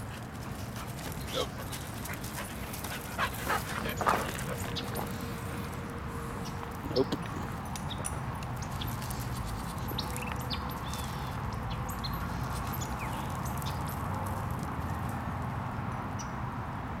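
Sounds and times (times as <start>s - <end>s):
birds chirping: 0.6s - 5.7s, 9.8s - 14.0s.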